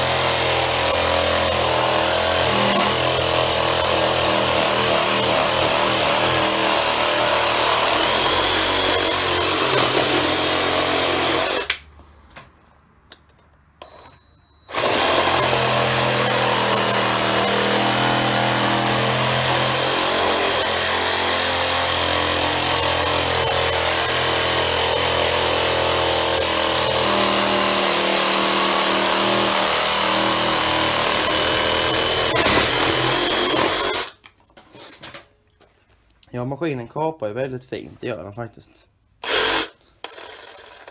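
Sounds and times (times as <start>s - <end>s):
reciprocating saw cutting wood: 0.0s - 11.7s, 14.7s - 34.1s.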